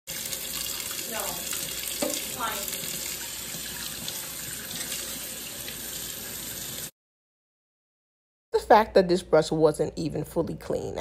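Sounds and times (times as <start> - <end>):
faucet running into metal sink: 0.1 - 6.9.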